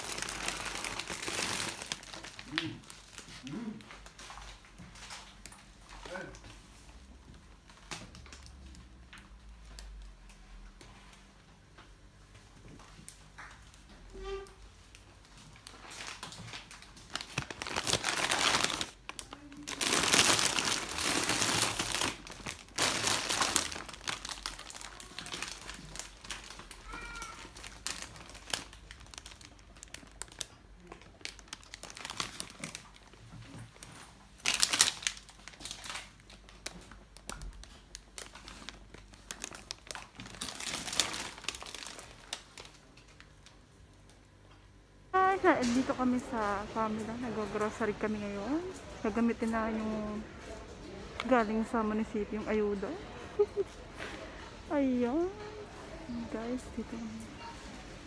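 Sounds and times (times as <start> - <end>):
plastic bags rustling: 0.0 - 6.4, 14.7 - 43.6.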